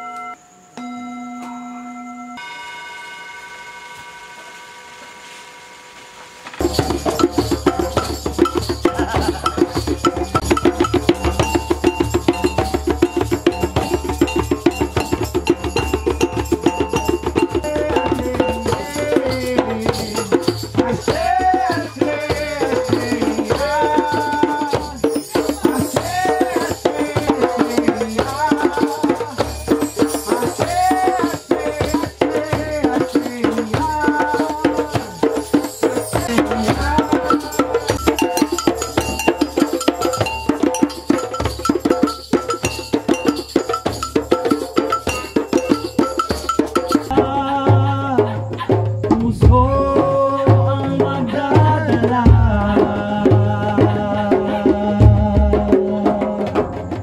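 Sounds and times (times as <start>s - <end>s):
sliding pitch melody: 0.0s - 6.6s
short ringing notes: 0.0s - 7.4s
shaker rattling: 6.3s - 47.2s
djembe drums playing: 6.6s - 57.0s.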